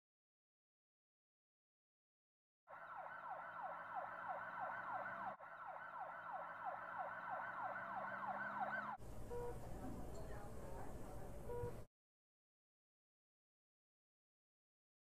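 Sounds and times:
ambulance siren yelping: 2.7 - 9.5.

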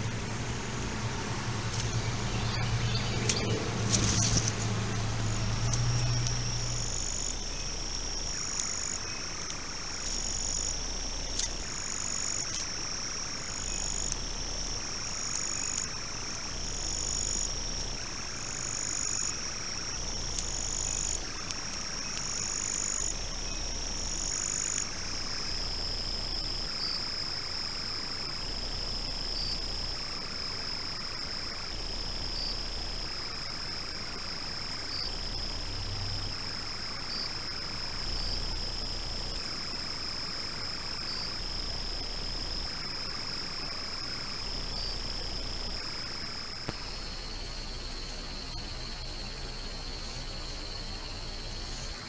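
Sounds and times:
insects calling in pulses: 0.0 - 52.0
steady high-pitched whine: 0.0 - 52.0
sharp clicks: 1.7 - 4.8, 5.6 - 12.8.

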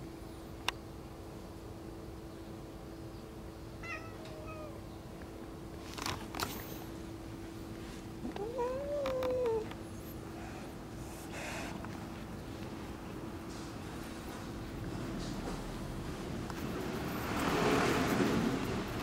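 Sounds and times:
cat meowing: 3.8 - 4.8, 8.2 - 9.7.

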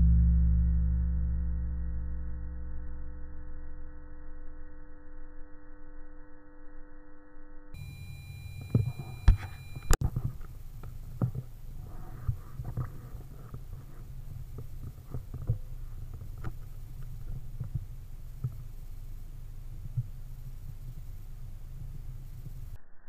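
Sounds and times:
low hum: 0.0 - 23.0.

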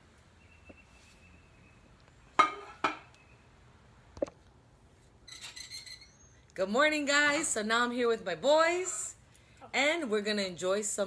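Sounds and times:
dishes clinking: 2.4 - 3.1.

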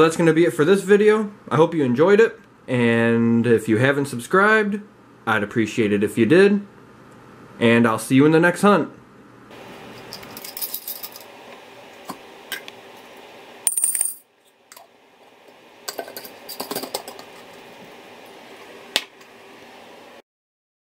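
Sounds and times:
coins clinking against glass jar: 10.0 - 11.3, 13.7 - 14.3.

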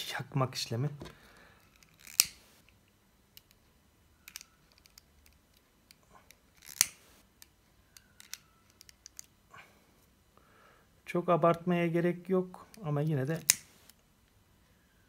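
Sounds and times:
sharp snap: 13.4 - 14.0.

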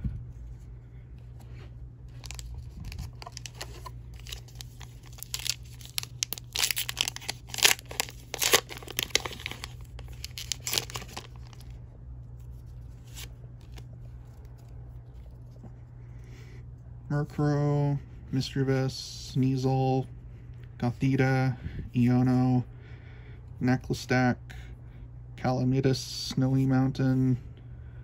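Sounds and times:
foil wrapper tearing and crinkling: 2.1 - 11.8.

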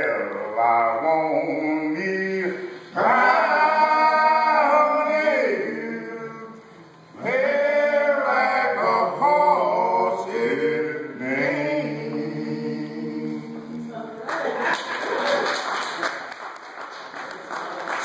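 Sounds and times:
men singing a cappella: 0.0 - 13.9.

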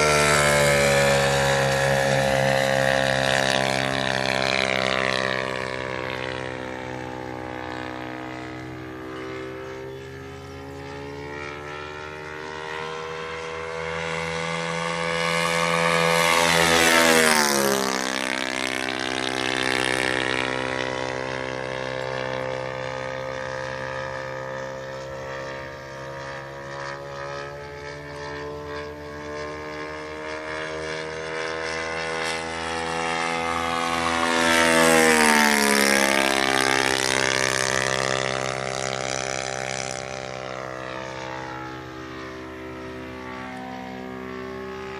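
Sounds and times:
model plane propeller drone: 0.0 - 44.9.

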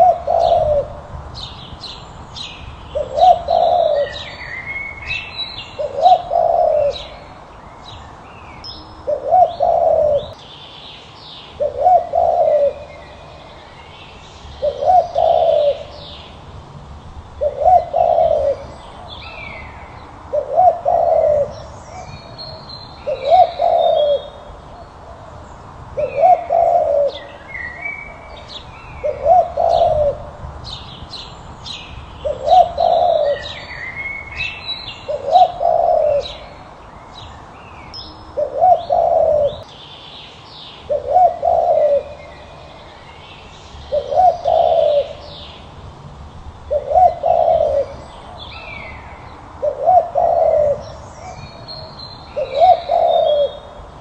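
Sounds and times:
dove cooing: 0.0 - 1.1, 2.9 - 7.4, 9.0 - 10.4, 11.6 - 13.5, 14.6 - 16.4, 17.4 - 25.4, 26.0 - 30.4, 32.2 - 36.8, 38.4 - 39.7, 40.9 - 42.8, 43.9 - 45.7, 46.7 - 54.0
small birds chirping: 0.0 - 54.0.

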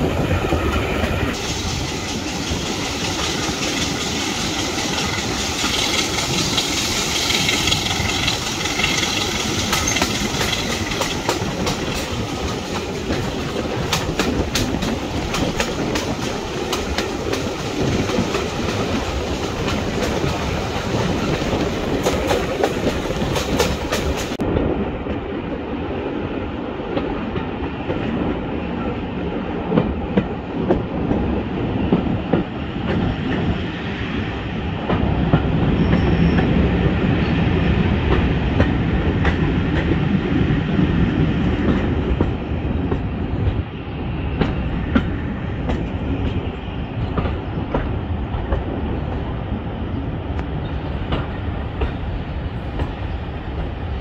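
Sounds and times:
train rumble: 0.0 - 54.0
train wheels clicking over rail joints: 0.4 - 24.4, 44.3 - 49.3, 50.4 - 53.8.

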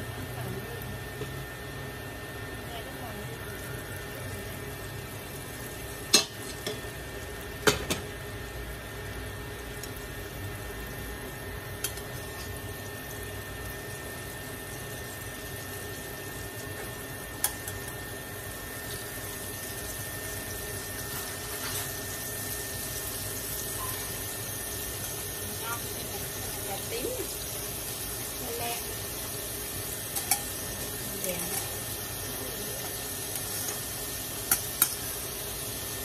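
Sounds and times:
deep-frying oil sizzle: 0.0 - 36.0.

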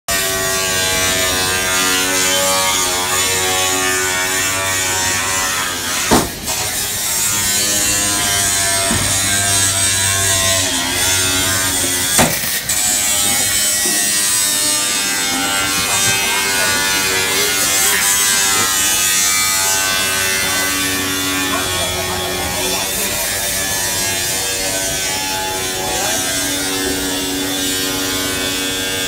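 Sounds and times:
angle grinder grinding metal: 0.1 - 29.0
sharp bangs: 5.9 - 18.2.

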